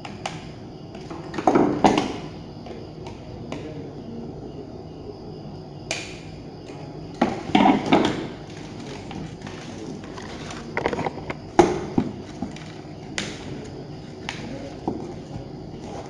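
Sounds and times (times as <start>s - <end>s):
plastic device knocks and clicks: 10.8s - 11.8s.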